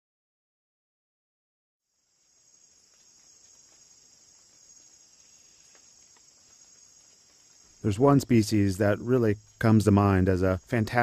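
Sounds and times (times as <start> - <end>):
high-pitched insect chorus: 1.8 - 11.0.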